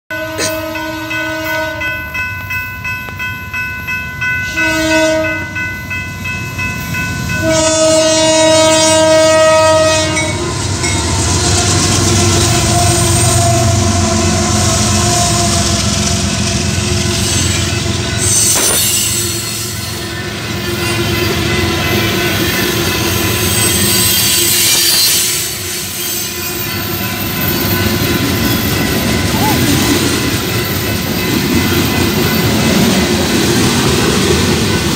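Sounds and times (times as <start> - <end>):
locomotive air horn blasts: 0.1 - 2.0, 4.5 - 5.5, 7.4 - 10.6, 12.1 - 16.1
crossing bell ringing: 0.1 - 34.9
train wheels clacking on rails: 10.0 - 34.9.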